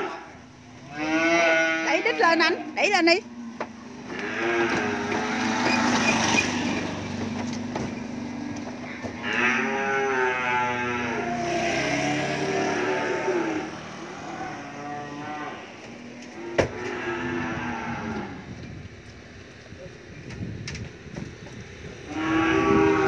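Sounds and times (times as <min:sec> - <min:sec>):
cattle mooing: 0:00.0 - 0:06.9, 0:08.8 - 0:18.5, 0:22.0 - 0:23.0.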